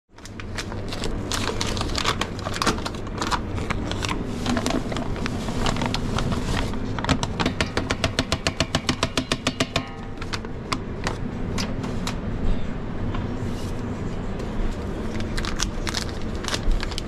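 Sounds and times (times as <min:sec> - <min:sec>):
steady low hum: 0:00.1 - 0:17.0
flour bag crinkling: 0:00.2 - 0:07.0, 0:14.8 - 0:17.0.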